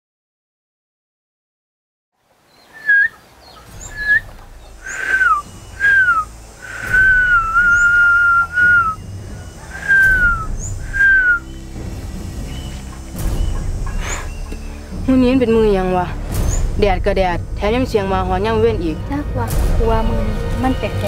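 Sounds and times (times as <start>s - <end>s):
faint bird chirps: 2.4s - 15.1s
dogs howling: 4.9s - 11.6s.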